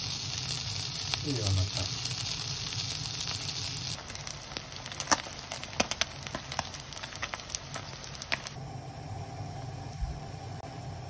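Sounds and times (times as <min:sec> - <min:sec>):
fish sizzling in a frying pan: 0:00.0 - 0:08.6
oil popping and crackling: 0:00.0 - 0:08.6.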